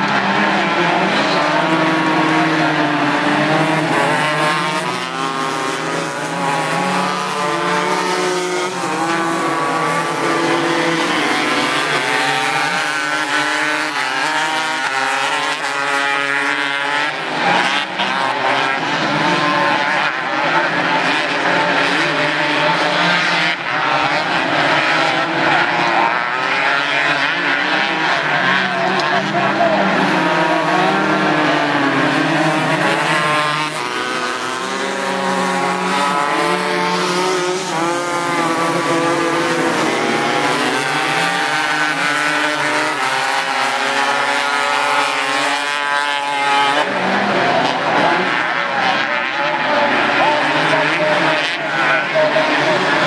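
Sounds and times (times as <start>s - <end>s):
kart engines revving high: 0.0s - 53.0s.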